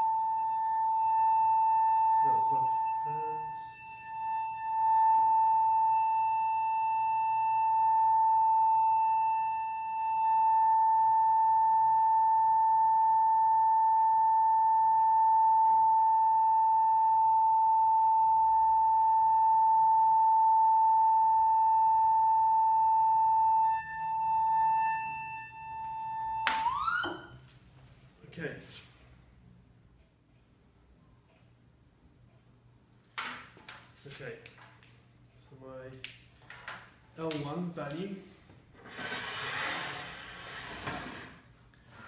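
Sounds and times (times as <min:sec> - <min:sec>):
steady sine tone: 0:00.0 - 0:27.5.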